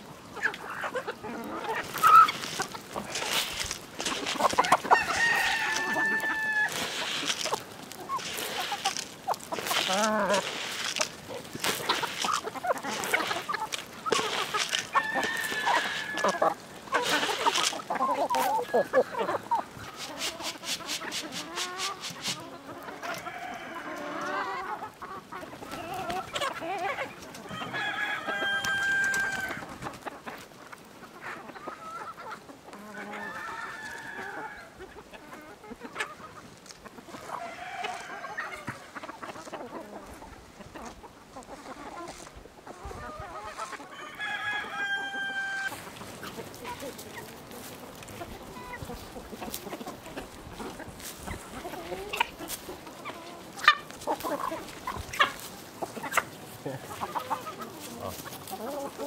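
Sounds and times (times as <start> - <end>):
chickens clucking: 0.0 - 59.0
rooster crowing: 4.8 - 7.0, 14.8 - 16.6, 23.1 - 24.6, 27.5 - 29.6, 33.0 - 34.7, 43.9 - 45.7.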